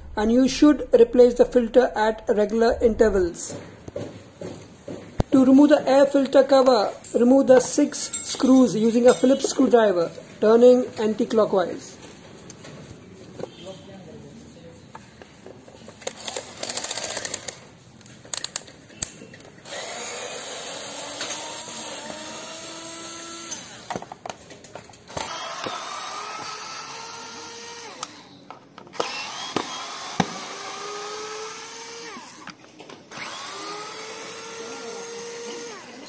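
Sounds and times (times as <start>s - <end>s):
electric screwdriver motor whine: 19.6s - 23.9s, 25.2s - 28.3s, 29.0s - 36.0s.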